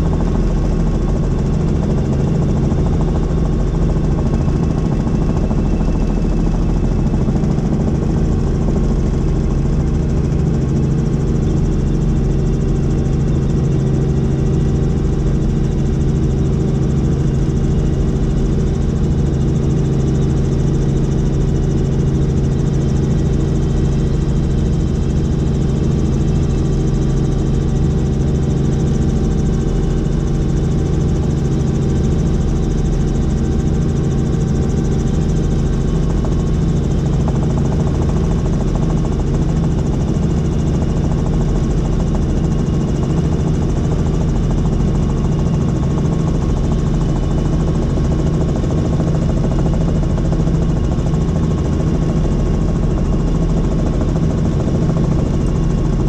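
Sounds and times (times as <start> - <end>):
helicopter cabin drone: 0.0 - 56.0.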